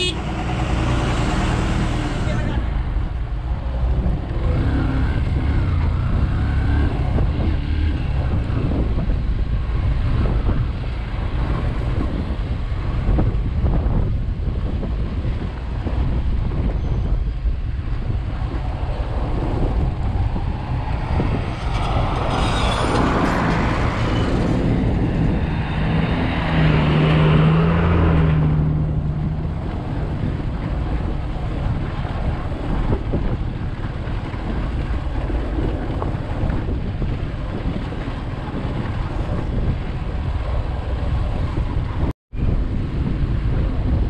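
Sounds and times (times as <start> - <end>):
motorcycle engine hum: 0.0 - 27.1
wind rush on microphone: 0.0 - 44.0.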